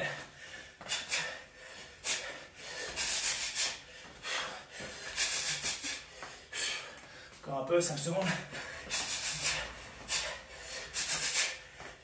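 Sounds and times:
sharp hissing breaths: 0.0s - 7.3s, 8.5s - 11.8s.

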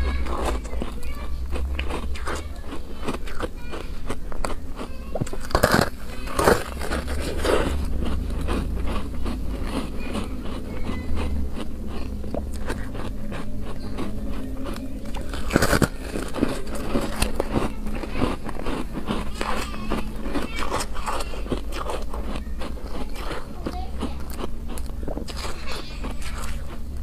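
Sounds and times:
biting into ice crunch: 0.0s - 26.8s
chewing ice crunches: 0.0s - 27.0s.

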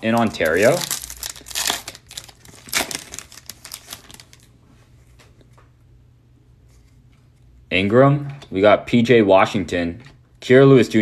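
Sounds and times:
foil wrapper tearing and crinkling: 0.0s - 4.5s.

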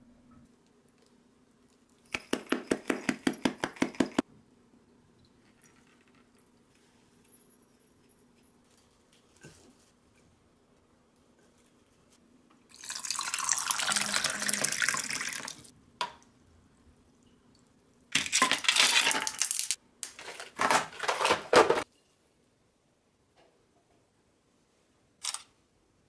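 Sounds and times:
hot water poured into mug: 12.7s - 15.7s.

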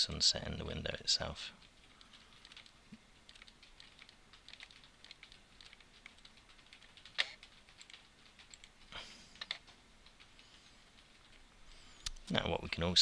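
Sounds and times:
keyboard and mouse clicking: 1.6s - 10.4s.

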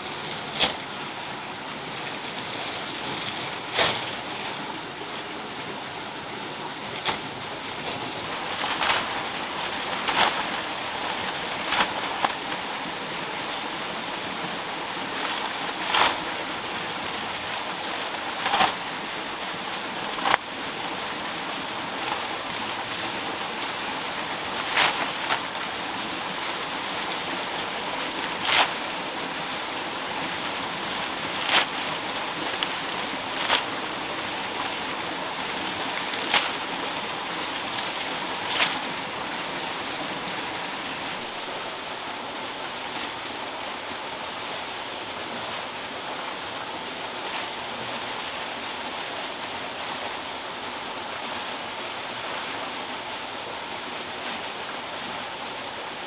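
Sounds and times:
dry palm thatch rustling: 0.0s - 43.6s
steady rushing noise: 0.0s - 52.2s.

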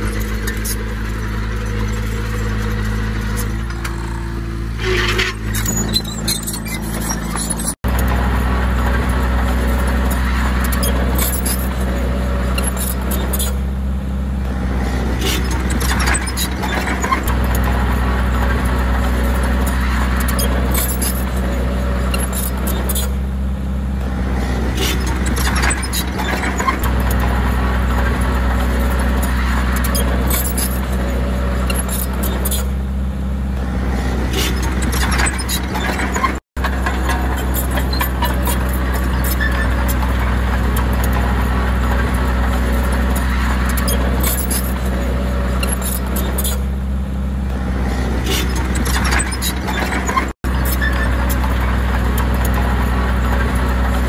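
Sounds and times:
bulldozer diesel engine running: 0.0s - 54.0s
short metal clanks and clicks: 15.2s - 17.8s, 34.3s - 46.6s, 48.2s - 54.0s.

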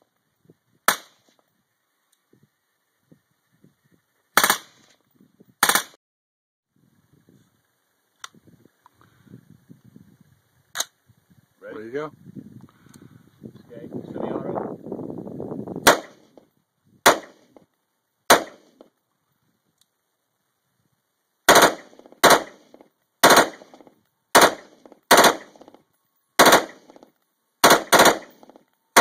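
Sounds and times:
suppressed rifle shots: 4.4s - 4.9s, 5.6s - 6.0s, 15.8s - 16.4s, 17.0s - 17.6s, 18.3s - 18.9s, 21.5s - 25.8s, 26.4s - 29.0s.

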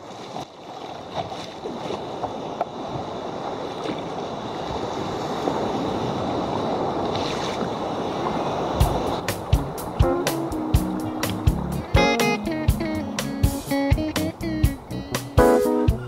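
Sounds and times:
water splashing against kayak hull: 0.0s - 12.8s.

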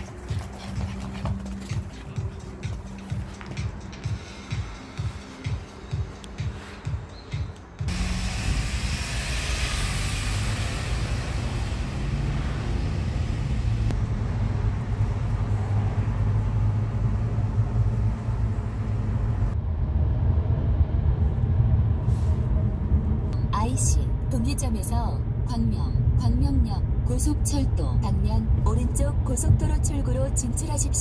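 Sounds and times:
tyre and engine rumble: 0.0s - 23.4s.

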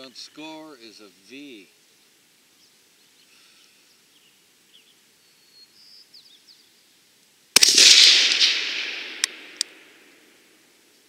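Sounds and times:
faint bird chirps: 0.9s - 7.1s
rifle shot with echo: 7.6s - 10.6s.

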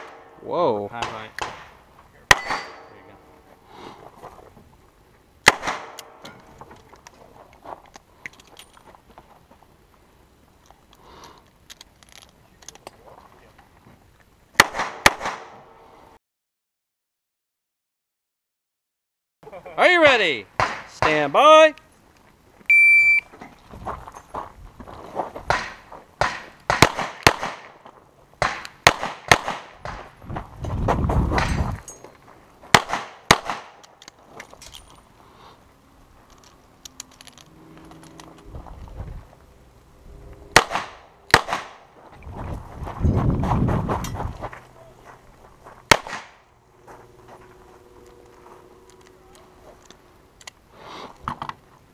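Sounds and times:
handgun shots echoing: 2.3s - 3.1s, 5.4s - 6.4s, 25.5s - 27.7s, 32.7s - 34.1s, 40.5s - 41.9s, 45.9s - 46.4s.

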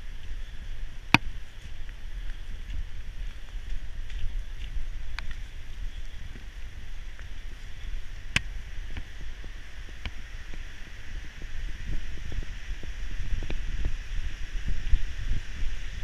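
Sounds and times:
steady rushing hiss: 0.0s - 16.0s
wind buffeting microphone: 0.0s - 16.0s.

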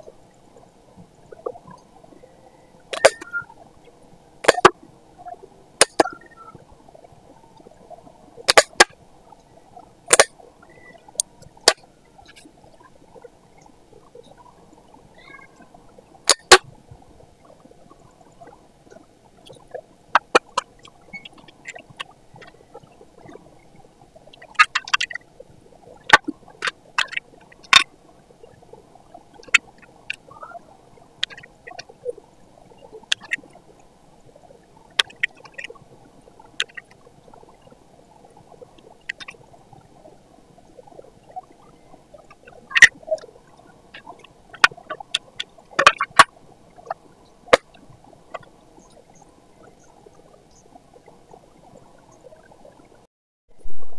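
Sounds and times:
faint steady hum: 0.0s - 53.9s.

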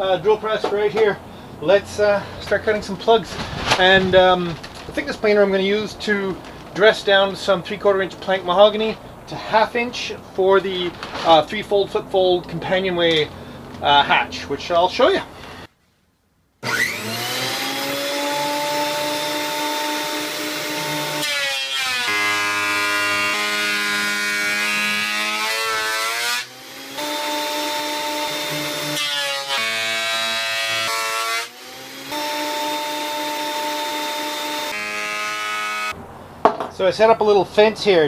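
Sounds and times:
thickness planer running: 16.6s - 35.9s
planer cutting wood plank: 16.6s - 36.0s.

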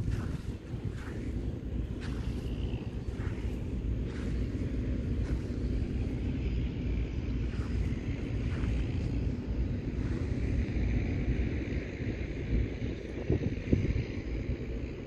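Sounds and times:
soft swishes: 0.0s - 11.2s
wind buffeting microphone: 0.0s - 15.0s.

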